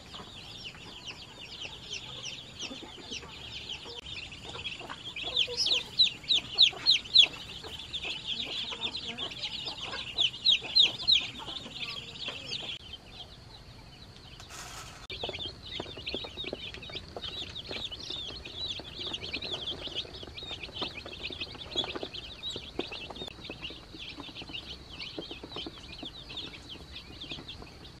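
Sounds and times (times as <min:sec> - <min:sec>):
baby chicks peeping: 0:00.0 - 0:28.0
short hiss: 0:14.4 - 0:15.1.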